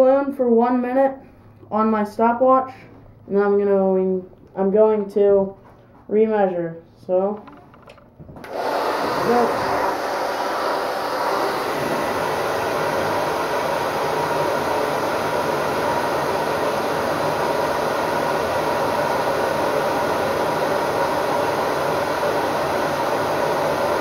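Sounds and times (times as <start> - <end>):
hair dryer blowing air: 8.4 - 24.0.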